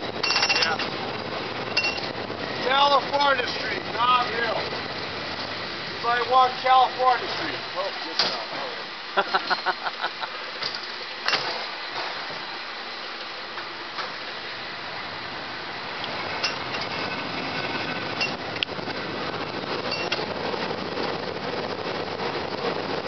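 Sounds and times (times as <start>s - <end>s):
cable car clattering rumble: 0.0s - 12.6s, 13.2s - 23.0s.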